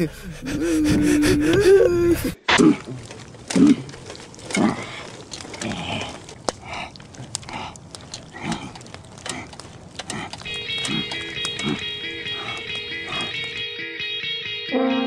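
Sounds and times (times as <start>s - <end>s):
person grunting: 0.0s - 3.0s.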